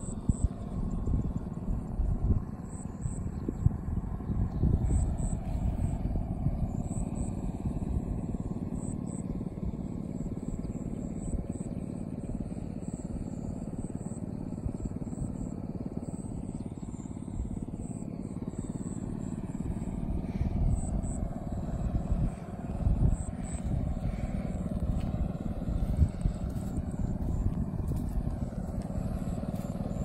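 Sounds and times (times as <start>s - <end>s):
wind buffeting microphone: 0.0s - 8.9s, 16.9s - 30.0s.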